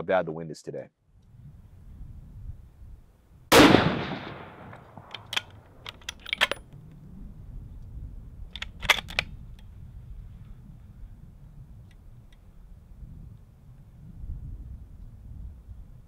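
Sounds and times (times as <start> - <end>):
low wind rumble: 1.0 - 16.0
rifle shot echoing: 3.5 - 5.8
rifle bolt clicks: 3.6 - 6.8, 8.5 - 9.7.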